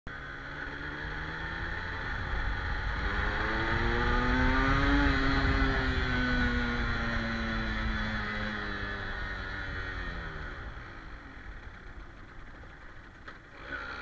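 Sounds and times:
motorcycle engine in low gear: 0.1s - 14.0s
wind noise on microphone: 1.3s - 9.9s.

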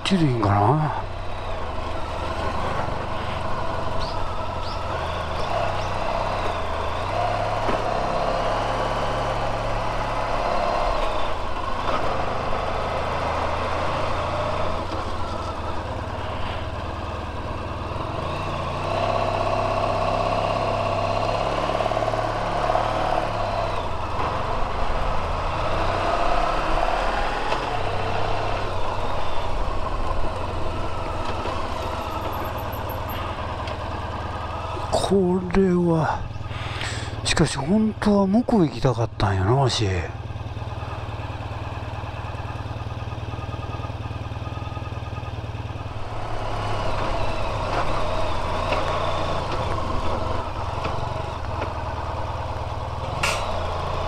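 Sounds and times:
motorcycle engine running: 0.0s - 38.2s, 40.1s - 54.0s.

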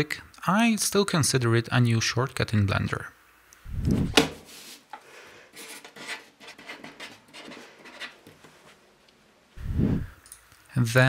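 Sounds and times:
card slapping on board: 4.0s - 4.4s
marker pen scratching: 5.6s - 8.2s.

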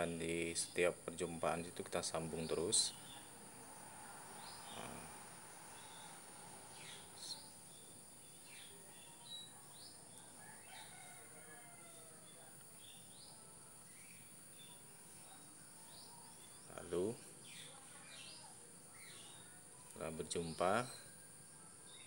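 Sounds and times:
birds calling: 0.0s - 22.0s
high insect hum: 0.0s - 22.0s
distant rooster crowing: 9.0s - 14.1s.

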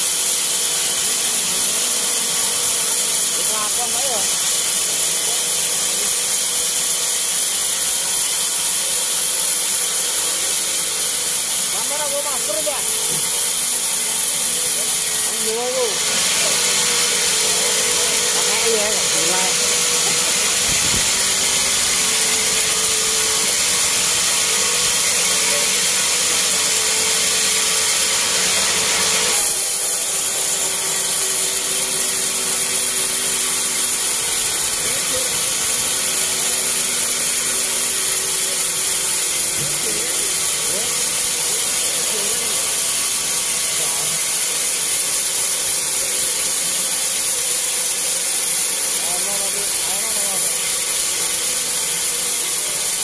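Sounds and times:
band saw ripping log: 12.8s - 53.0s.

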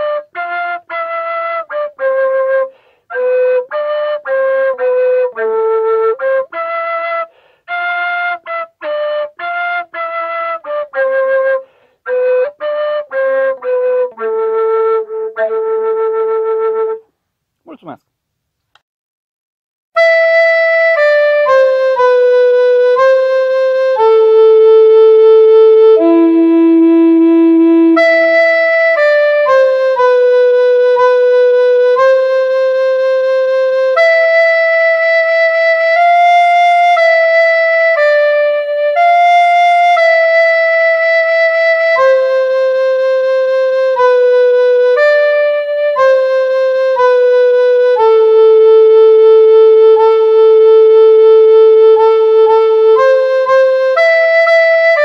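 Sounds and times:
woodwind playing slow melody: 0.0s - 17.0s, 20.0s - 55.0s.

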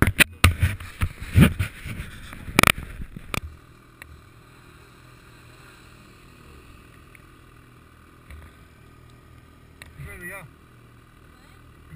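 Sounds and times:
handling noise on microphone: 0.0s - 3.5s
distant snowmobile engines droning: 0.0s - 11.9s.

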